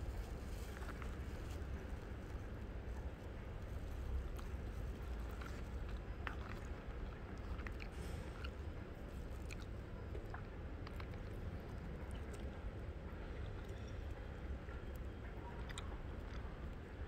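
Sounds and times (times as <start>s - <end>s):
person chewing food: 4.2s - 12.6s, 15.6s - 16.6s.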